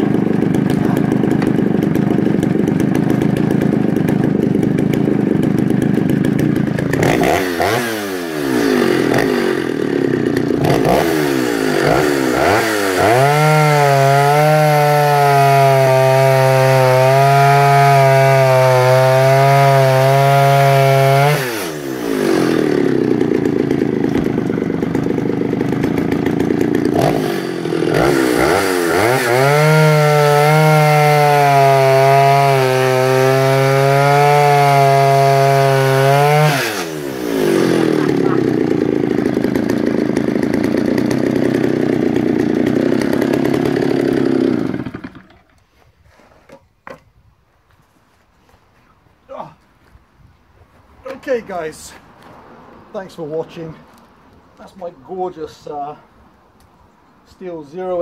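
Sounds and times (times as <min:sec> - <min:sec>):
chainsaw idling roughly: 0:00.0 - 0:45.6
chainsaw cutting log: 0:00.0 - 0:47.1.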